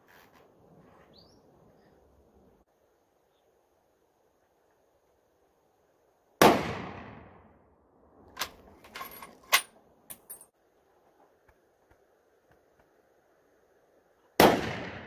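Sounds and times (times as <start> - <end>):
rifle shot: 6.4 - 7.4, 14.4 - 15.0.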